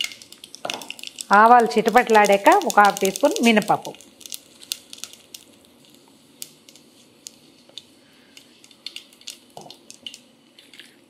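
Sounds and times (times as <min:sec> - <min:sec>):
faint sizzle: 0:00.0 - 0:11.0
seeds popping in hot oil: 0:00.0 - 0:11.0.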